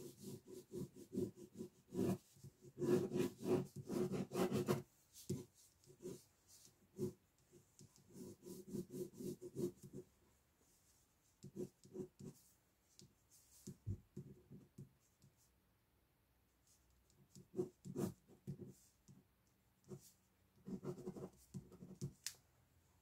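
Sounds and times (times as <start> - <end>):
pen scratching on paper: 0.0 - 10.1, 11.4 - 12.5, 17.1 - 18.9, 19.8 - 22.2.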